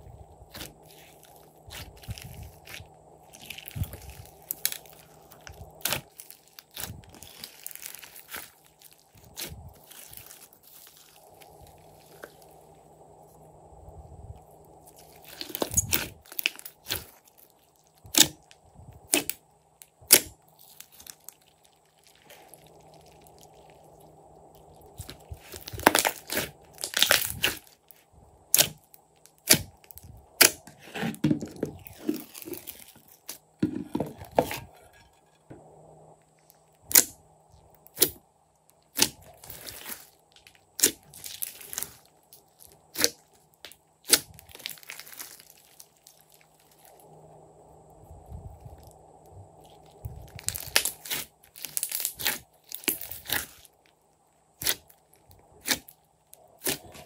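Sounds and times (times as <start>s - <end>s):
slime squelching and popping: 0.5s - 12.5s, 24.5s - 30.7s, 38.9s - 46.9s, 49.6s - 53.6s, 54.6s - 55.0s, 55.6s - 55.9s, 56.6s - 57.0s.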